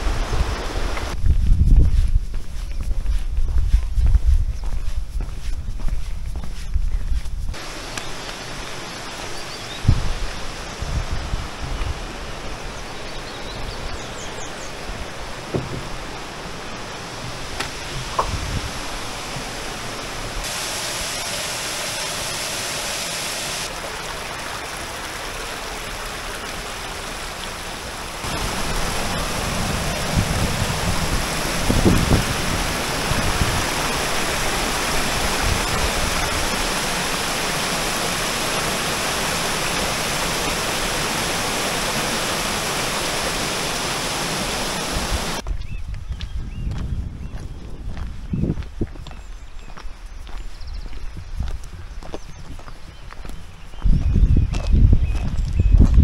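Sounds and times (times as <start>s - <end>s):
stream splashing over stones: 7.6s - 10.3s, 14.8s - 45.4s.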